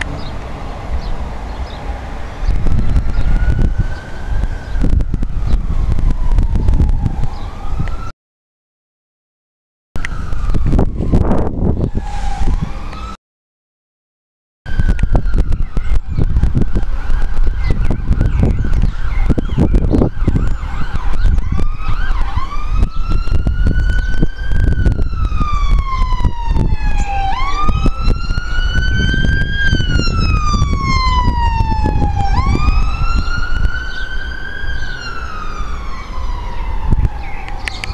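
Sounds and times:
wailing siren: 0:00.6 - 0:08.1, 0:10.0 - 0:13.2, 0:14.7 - 0:37.9
low rumble with crackling buffets: 0:14.7 - 0:33.8.

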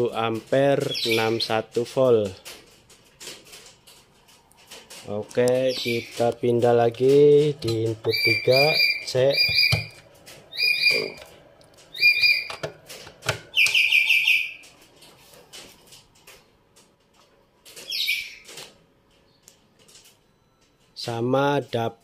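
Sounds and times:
bird chirping: 0:00.8 - 0:01.6, 0:05.6 - 0:06.6, 0:07.2 - 0:11.3, 0:11.9 - 0:12.7, 0:13.5 - 0:14.7, 0:17.8 - 0:18.6.

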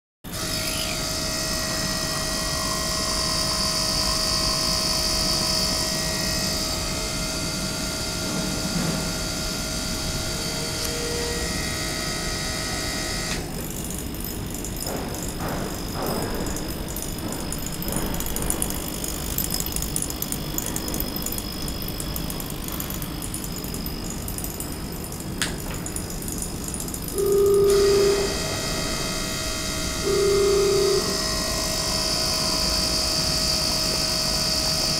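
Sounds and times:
ultrasonic cleaner buzzing: 0:00.3 - 0:34.9
short beep: 0:27.2 - 0:28.6, 0:30.0 - 0:31.2.

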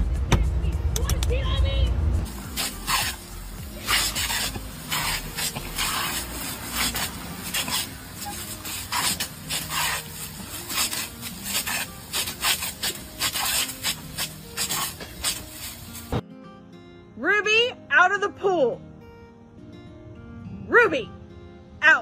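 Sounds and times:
sprinkler water jet hissing: 0:02.2 - 0:16.2.

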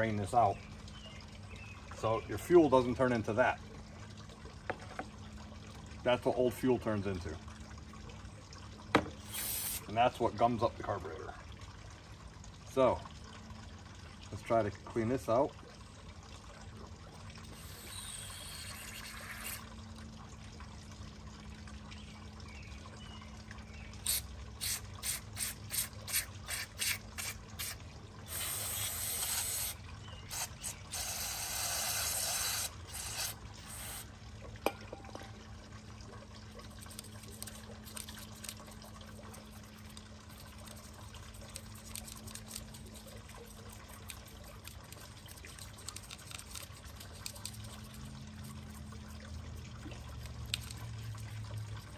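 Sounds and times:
faint dripping: 0:00.0 - 0:25.0, 0:27.2 - 0:51.9
aerosol spray hissing: 0:09.3 - 0:09.8, 0:26.5 - 0:34.0.

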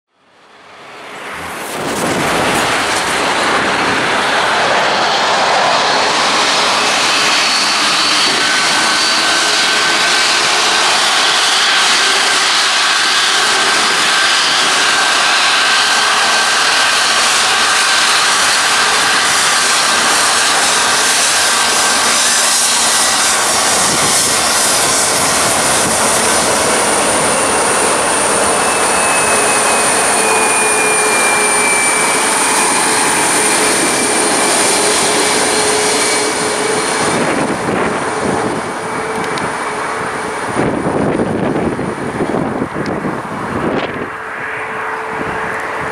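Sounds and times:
jet engines roaring with whine: 0:00.1 - 0:45.9.

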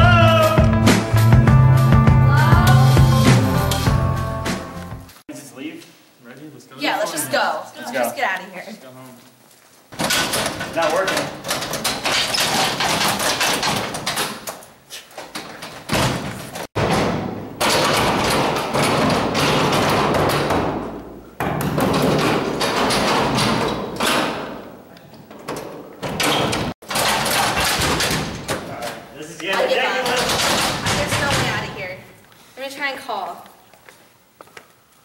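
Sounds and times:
glass doors thudding and rattling: 0:09.9 - 0:29.0, 0:29.6 - 0:32.0.

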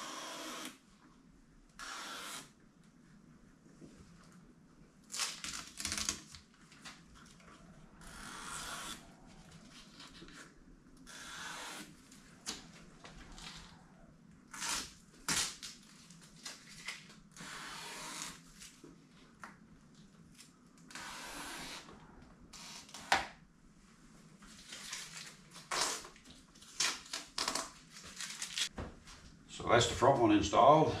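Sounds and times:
tape rustling and ripping: 0:05.0 - 0:07.7, 0:12.1 - 0:13.8, 0:14.5 - 0:17.3, 0:24.4 - 0:28.7.

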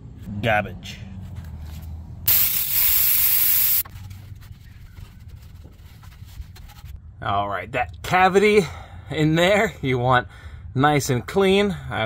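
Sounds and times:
aerosol can spraying hiss: 0:02.3 - 0:03.8.

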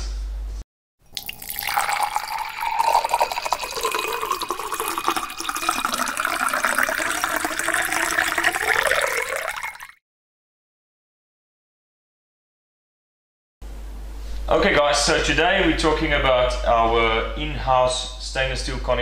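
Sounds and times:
beer pouring and splashing: 0:01.0 - 0:10.0.

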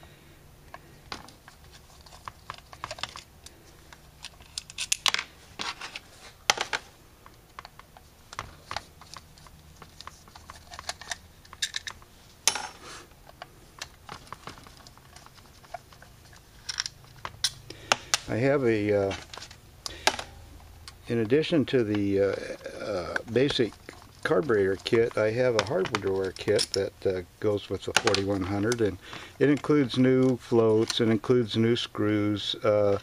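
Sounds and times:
metal parts clicking and knocking: 0:04.2 - 0:05.7, 0:09.9 - 0:18.2, 0:23.1 - 0:26.9.

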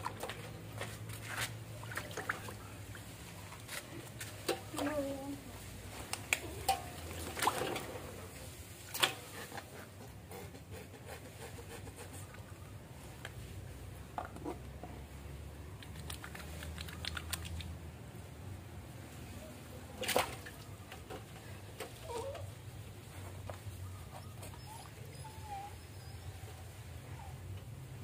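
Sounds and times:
water splashing in metal basin: 0:01.7 - 0:03.1, 0:06.3 - 0:09.3, 0:15.8 - 0:17.9, 0:20.0 - 0:20.9.

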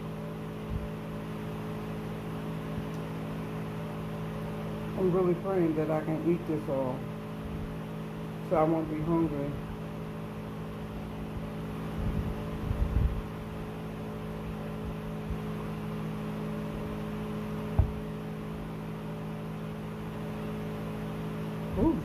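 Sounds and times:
indoor mechanical hum: 0:00.0 - 0:22.0
soft low thumps: 0:17.7 - 0:18.1.

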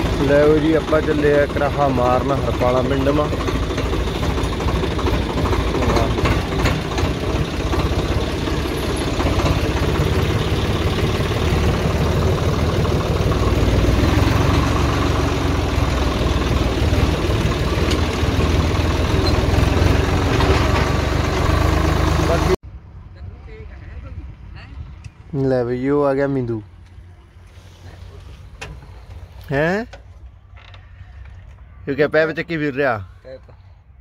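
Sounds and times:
tractor diesel engine running: 0:00.0 - 0:22.6.

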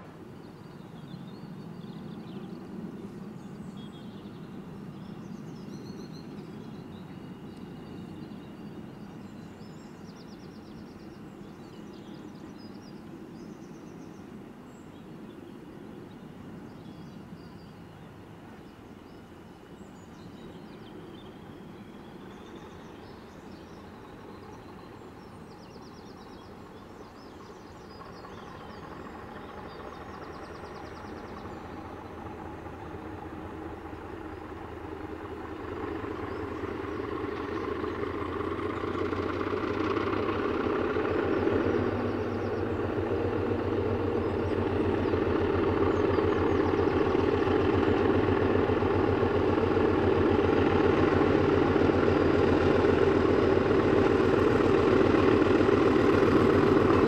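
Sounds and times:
birds chirping: 0:00.0 - 0:57.0
distant diesel locomotive rumble: 0:00.0 - 0:57.0.

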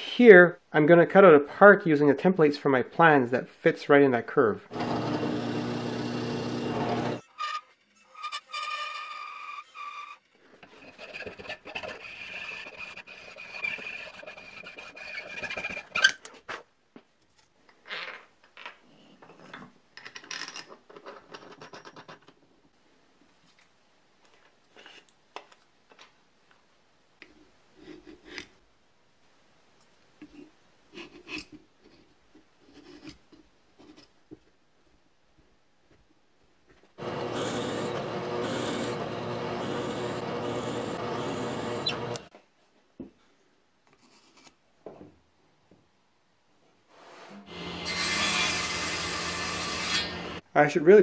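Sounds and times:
bandsaw cutting wood: 0:04.7 - 0:07.3, 0:37.0 - 0:42.3, 0:47.3 - 0:50.4.

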